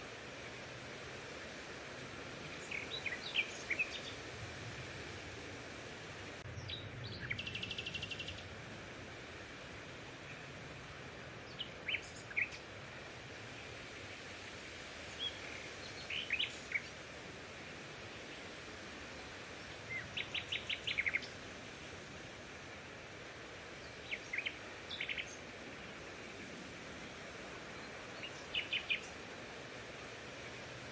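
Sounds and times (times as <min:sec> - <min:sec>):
steady outdoor hiss: 0:00.0 - 0:30.9
birds chirping and trilling: 0:19.9 - 0:21.4.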